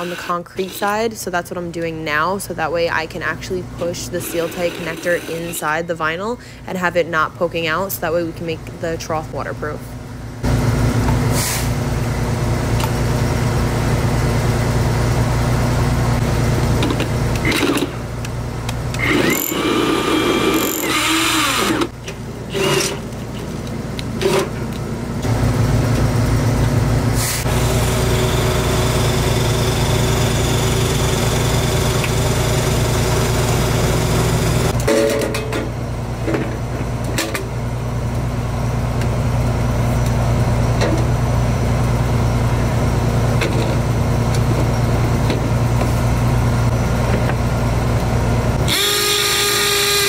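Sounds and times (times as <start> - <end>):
cordless drill boring into metal: 0.0 - 0.9, 4.2 - 5.6, 19.0 - 21.9, 27.5 - 34.7, 48.7 - 50.0
rotary hammer drilling concrete: 0.0 - 0.9, 4.2 - 5.6, 19.0 - 21.9, 27.5 - 34.8, 48.6 - 50.0.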